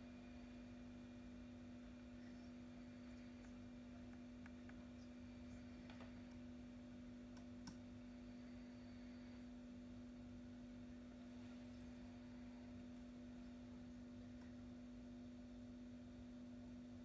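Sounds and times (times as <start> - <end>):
faint hum: 0.0 - 17.0
faint clicks: 7.3 - 7.8.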